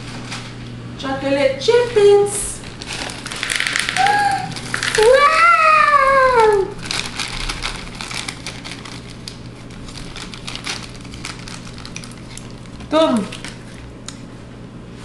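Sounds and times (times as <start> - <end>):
plastic bag crinkling: 0.0 - 0.6, 2.6 - 14.2
chocolate chips pattering into bowl: 2.7 - 13.9
high-pitched vocal cry: 4.0 - 6.8.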